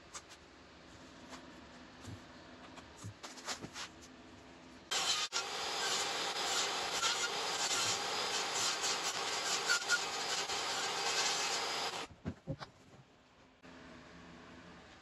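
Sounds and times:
table saw cutting wood: 4.9s - 12.1s.

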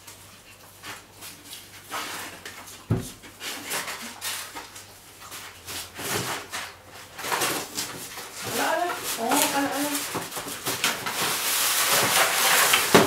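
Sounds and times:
paper rustling: 0.0s - 13.0s.

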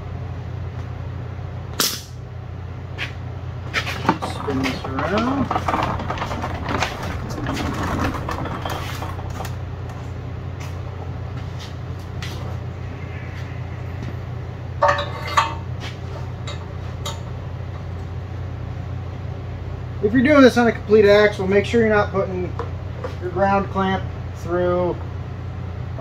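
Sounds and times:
steady low hum: 0.0s - 26.0s
metal clanks and knocks: 3.8s - 10.0s, 14.8s - 17.3s.

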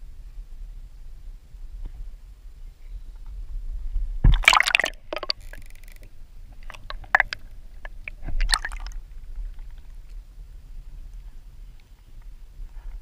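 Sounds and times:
water splashing and gurgling: 4.2s - 10.1s.

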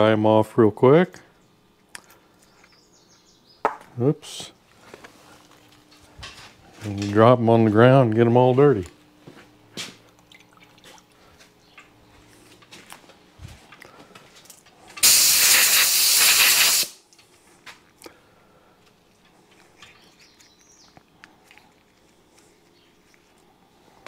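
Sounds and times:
compressed air blow gun hissing: 15.0s - 17.0s.

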